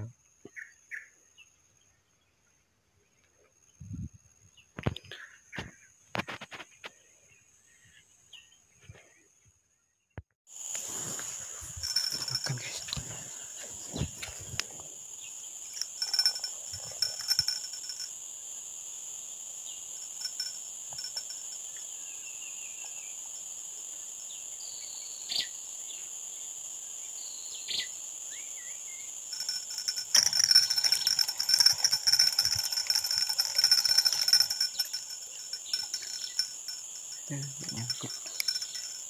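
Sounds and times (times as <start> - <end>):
insects droning: 10.5 - 39.0.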